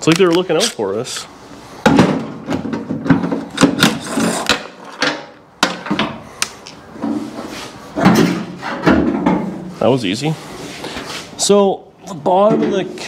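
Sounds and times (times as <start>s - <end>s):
metallic clunks and knocks: 1.8s - 6.2s, 8.0s - 9.7s.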